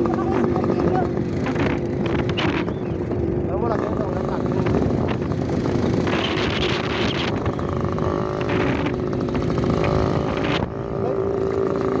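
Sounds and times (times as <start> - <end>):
road noise on dirt road: 0.0 - 12.0
vehicle engine running: 0.0 - 12.0.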